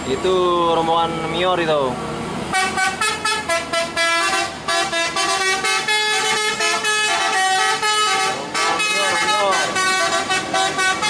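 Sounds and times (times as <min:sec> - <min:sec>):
musical air horn tune: 0:02.5 - 0:11.0.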